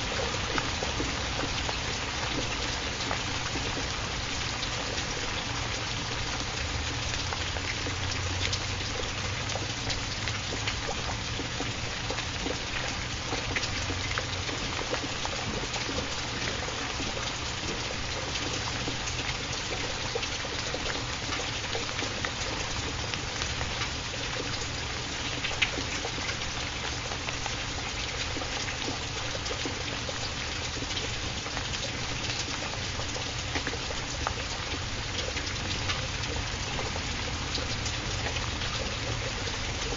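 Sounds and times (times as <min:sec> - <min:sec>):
steady rain: 0:00.0 - 0:39.9.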